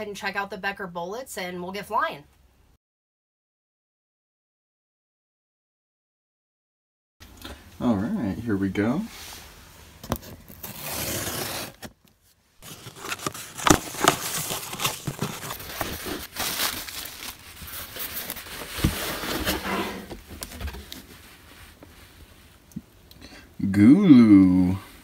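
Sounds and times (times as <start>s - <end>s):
cardboard crinkling and scraping: 10.0s - 21.9s
cardboard snap: 12.7s - 15.9s.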